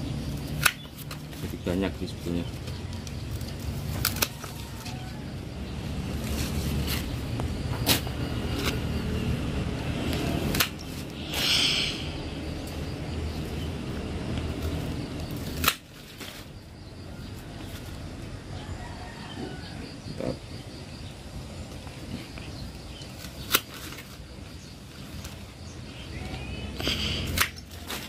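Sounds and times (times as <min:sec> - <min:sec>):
leafy branches rustling: 0:00.3 - 0:08.9.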